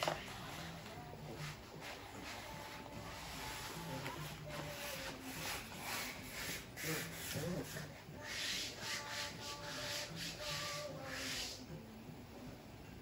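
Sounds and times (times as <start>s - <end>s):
hands rubbing a sticker: 1.4s - 11.6s.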